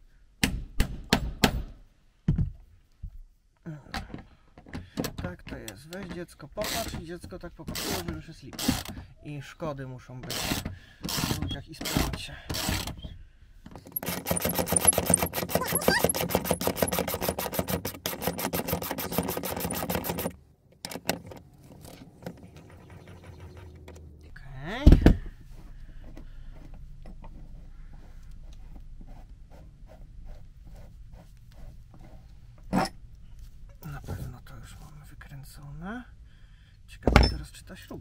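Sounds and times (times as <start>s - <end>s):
ratchet wrench clicking: 13.9s - 20.4s.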